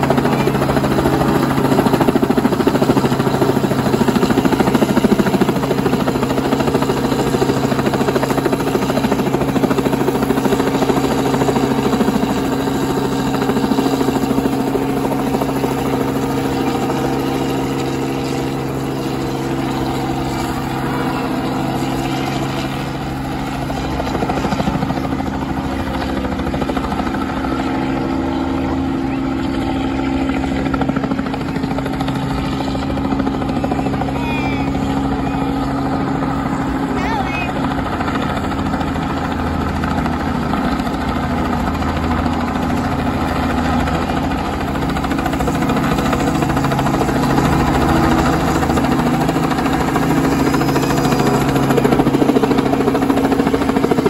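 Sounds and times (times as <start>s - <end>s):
helicopter hovering: 0.0s - 54.0s.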